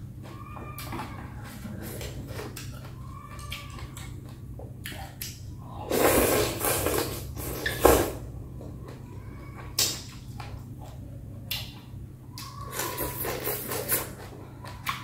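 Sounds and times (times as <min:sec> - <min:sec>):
faint eating sounds: 0:00.0 - 0:15.0
person slurping noodles: 0:05.8 - 0:08.1.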